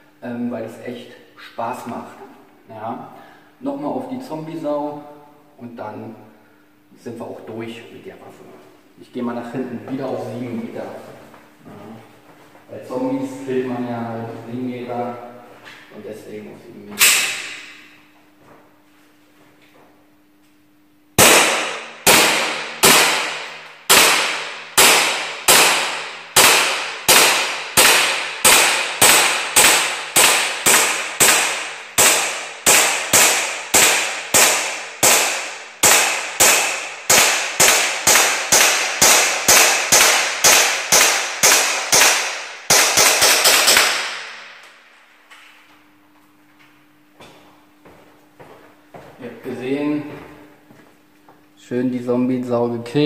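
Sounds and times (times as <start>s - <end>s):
airsoft pistol shots: 17.0s - 17.8s, 21.2s - 44.6s.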